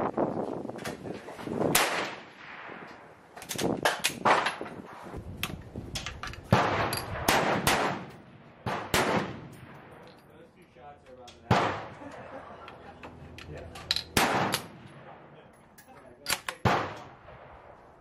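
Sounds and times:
rifle shots: 1.7s - 2.9s, 6.5s - 10.0s, 11.5s - 12.0s, 14.0s - 15.3s, 16.3s - 17.8s
metallic clicks of rifle bolt: 15.8s - 17.1s.

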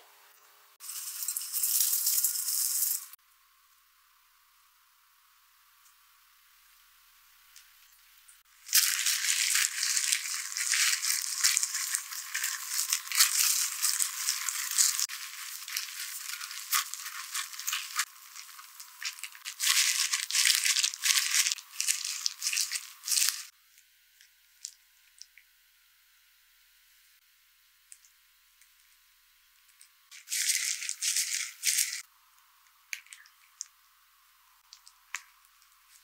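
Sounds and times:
plastic gloves crinkling: 8.6s - 23.5s, 30.1s - 32.1s, 34.6s - 36.0s.

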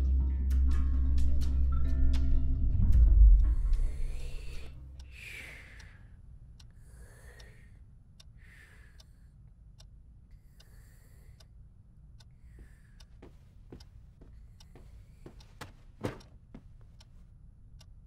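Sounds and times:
soft slow breathing: 3.4s - 9.6s, 10.3s - 17.3s
clock ticking: 5.7s - 18.0s.

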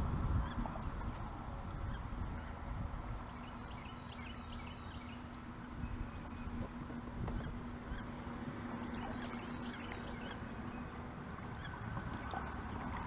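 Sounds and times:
steady low hum: 0.0s - 13.0s
paddle splashing in water: 5.3s - 13.0s
paddle knocking against hull: 6.2s - 7.7s.

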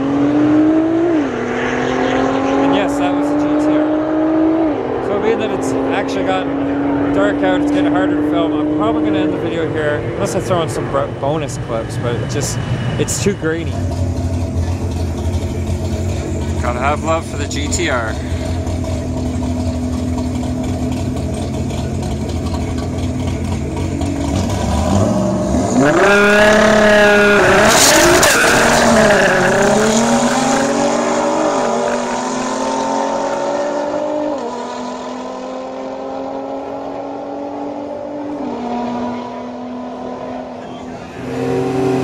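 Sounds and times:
drag racing car accelerating: 0.0s - 42.0s
engine idling: 11.5s - 24.6s.

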